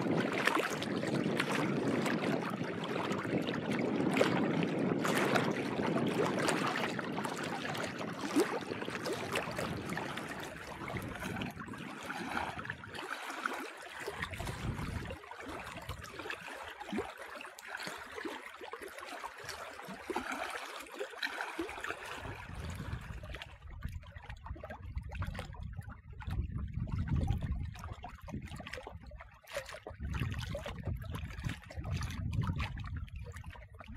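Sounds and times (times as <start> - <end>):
waves lapping at rocky shore: 0.0 - 23.6.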